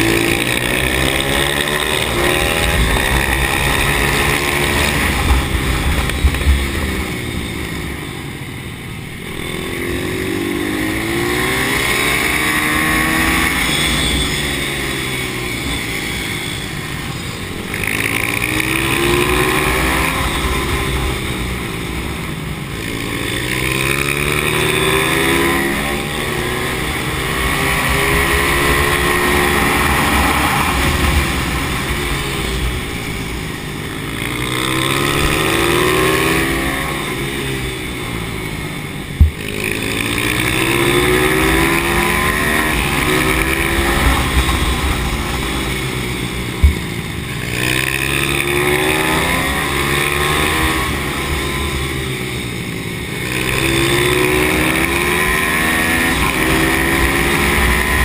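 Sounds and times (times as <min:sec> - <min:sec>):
pit bike engine revving: 0:00.0 - 0:58.0.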